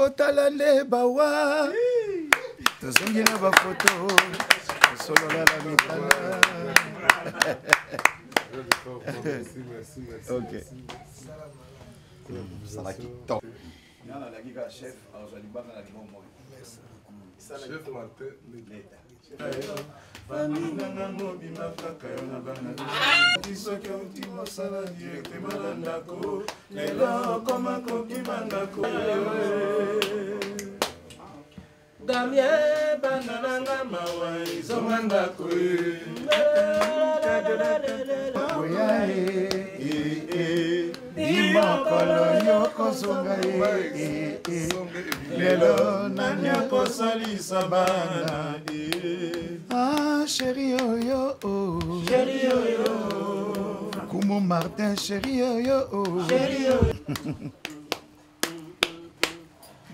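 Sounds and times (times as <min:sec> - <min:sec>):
voices singing: 0:00.0 - 0:07.8, 0:19.4 - 0:31.1, 0:32.0 - 0:59.6.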